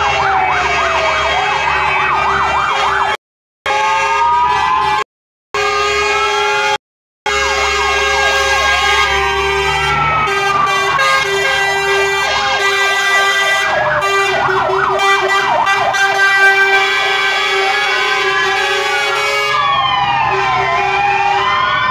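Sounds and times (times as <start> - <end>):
fire engine sirens wailing and yelping: 0.0 - 21.9
truck engines running: 7.4 - 21.9.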